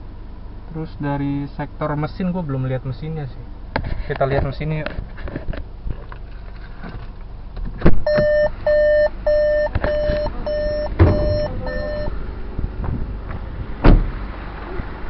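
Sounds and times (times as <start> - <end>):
car warning chime beeping: 8.0 - 12.2
car door shutting thud: 9.7 - 11.6, 12.8 - 14.2
clunk: 10.9 - 11.5.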